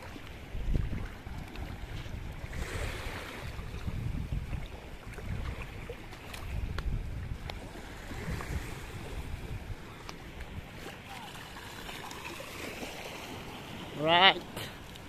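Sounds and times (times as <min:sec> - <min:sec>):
wind buffeting microphone: 0:00.0 - 0:11.2
small waves washing ashore: 0:00.0 - 0:15.0.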